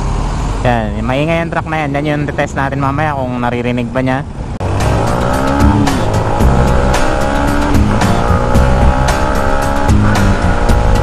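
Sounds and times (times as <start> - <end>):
motorcycle engine accelerating: 4.6 - 11.0.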